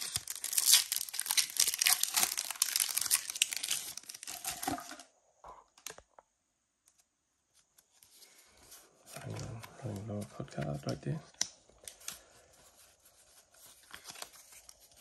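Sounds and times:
foil wrapper crinkling and tearing: 0:00.0 - 0:05.0.

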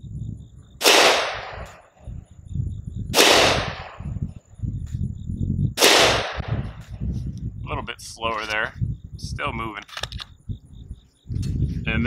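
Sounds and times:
pistol shots with ringing tail: 0:00.8 - 0:02.0, 0:03.1 - 0:04.2, 0:05.8 - 0:06.9.

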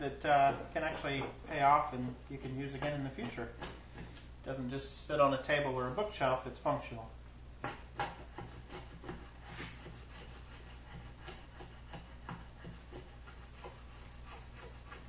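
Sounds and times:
wood chisel scraping cuts: 0:07.6 - 0:15.0.

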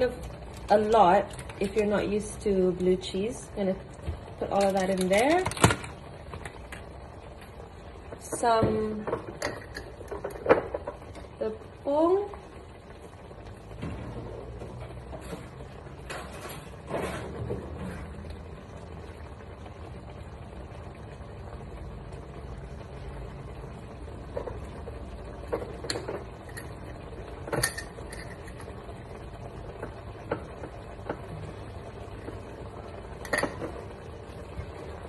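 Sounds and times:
utensils and dishes clinking: 0:27.4 - 0:28.8, 0:33.2 - 0:33.8.

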